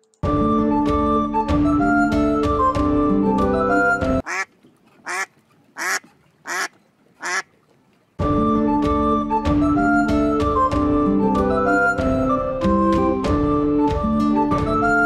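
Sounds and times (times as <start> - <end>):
duck quacking: 4.2 - 7.5
light background music: 8.2 - 15.0.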